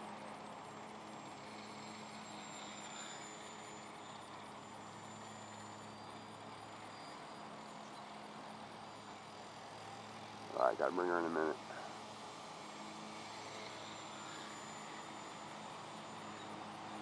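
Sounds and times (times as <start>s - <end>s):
model plane motor whine: 0.0s - 10.5s, 11.6s - 17.0s
steady low hum: 10.5s - 11.9s.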